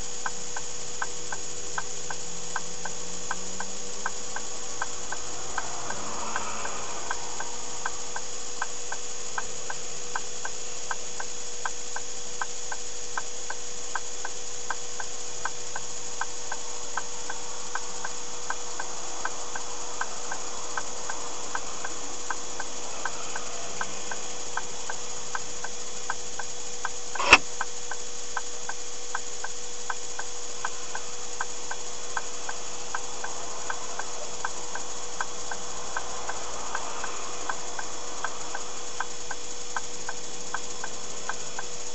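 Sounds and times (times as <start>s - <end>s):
turn signal ticking: 0.0s - 41.8s
steady electronic hum: 0.0s - 41.9s
sharp knock: 27.2s - 27.5s.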